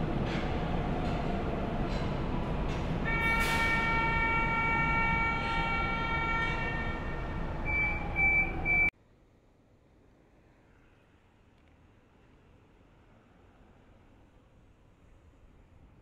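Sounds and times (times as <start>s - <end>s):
metro train rumbling: 0.0s - 8.9s.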